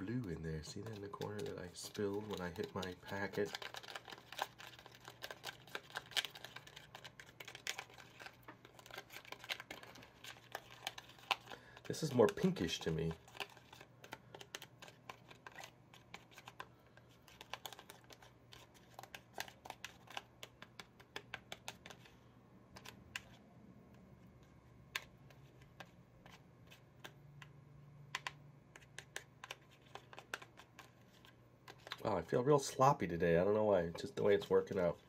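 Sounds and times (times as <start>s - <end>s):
plastic spoon scraping candy mold: 0.1s - 23.4s, 28.2s - 32.0s.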